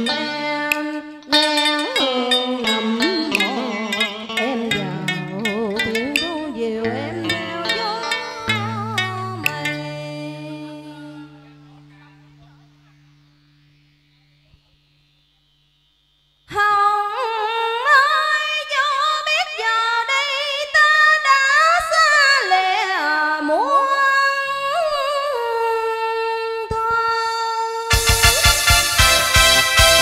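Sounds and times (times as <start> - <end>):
woman singing unaccompanied: 0.0 - 11.7, 16.5 - 27.9
keyboard music: 0.0 - 13.6, 27.9 - 30.0.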